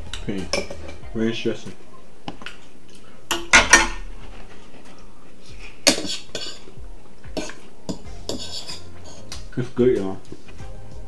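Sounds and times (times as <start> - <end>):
forks clinking on ceramic bowls: 0.1 - 1.0, 7.4 - 8.9.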